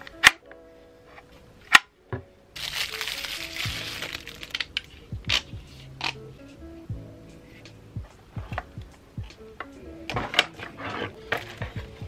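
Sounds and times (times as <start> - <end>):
plastic bag crinkling: 2.6 - 4.8.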